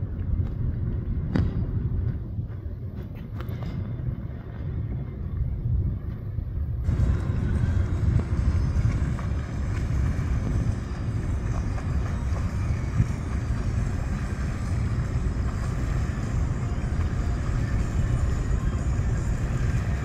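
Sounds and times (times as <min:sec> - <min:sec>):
boat engines rumbling: 0:00.0 - 0:20.0.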